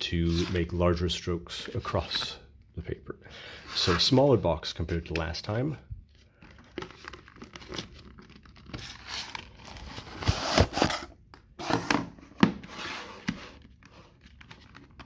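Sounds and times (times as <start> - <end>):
cardboard scraping and rustling: 6.8 - 15.0.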